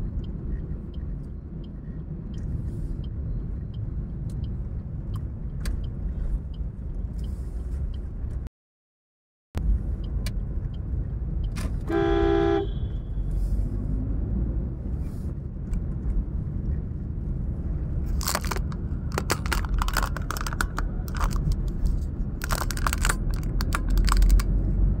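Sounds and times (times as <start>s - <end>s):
car engine and tyre rumble: 0.0s - 8.5s, 9.6s - 25.0s
crackling clicks near microphone: 18.1s - 24.6s.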